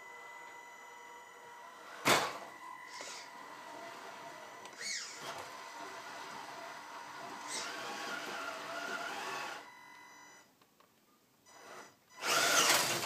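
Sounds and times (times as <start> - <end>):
toy truck motor whining: 2.8 - 9.7, 11.6 - 13.0.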